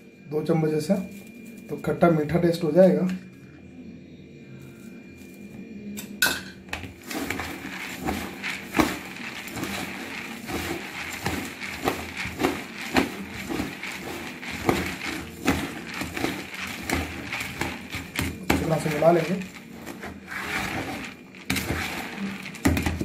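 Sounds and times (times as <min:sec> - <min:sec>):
puffed rice rustling: 0:01.0 - 0:02.0, 0:06.8 - 0:23.0.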